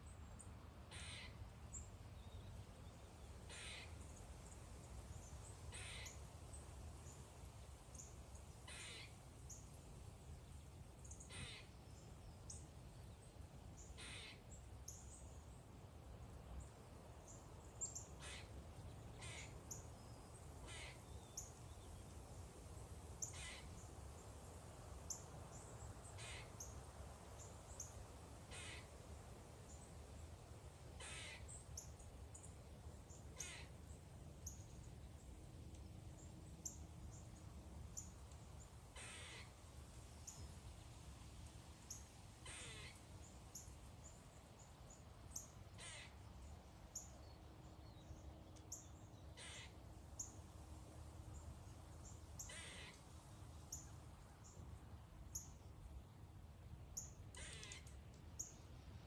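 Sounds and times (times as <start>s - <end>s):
bird cawing: 0.9s - 1.4s, 3.5s - 4.0s, 5.7s - 6.2s, 8.6s - 9.2s, 11.2s - 11.7s, 14.0s - 14.5s, 18.2s - 19.6s, 20.6s - 21.1s, 23.2s - 23.8s, 26.1s - 26.7s, 28.5s - 28.9s, 31.0s - 31.6s, 33.4s - 33.8s, 38.9s - 39.6s, 42.4s - 43.0s, 45.8s - 46.2s, 49.4s - 49.8s, 52.4s - 53.0s, 57.3s - 58.0s.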